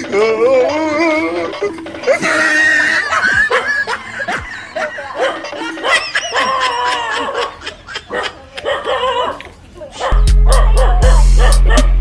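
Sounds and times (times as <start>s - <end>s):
background music: 0.0s - 7.1s, 10.2s - 12.0s
snickering voices: 0.0s - 9.4s
laughter sound effect: 1.6s - 8.6s.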